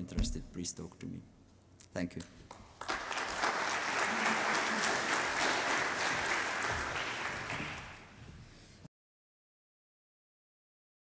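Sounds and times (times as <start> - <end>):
audience applauding: 2.5 - 8.2.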